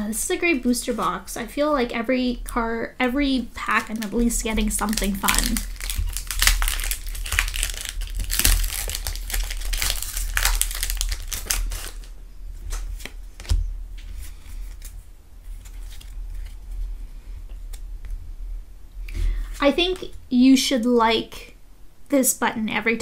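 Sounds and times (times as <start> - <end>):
handling of cards: 3.5 - 16.9
foil wrapper crinkling: 3.6 - 13.6.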